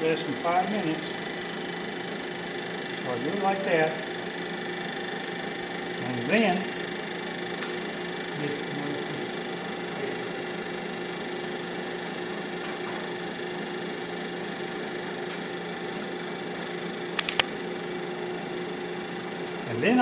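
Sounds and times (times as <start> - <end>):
wood lathe running: 0.0 - 20.0
quick sharp clicks: 17.1 - 17.5.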